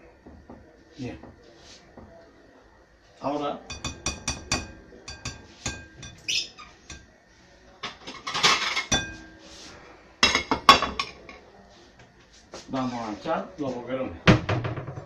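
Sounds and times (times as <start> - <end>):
utensil clinking on glass bowl: 3.7 - 7.1, 7.9 - 9.2
loud knocks: 14.3 - 15.0.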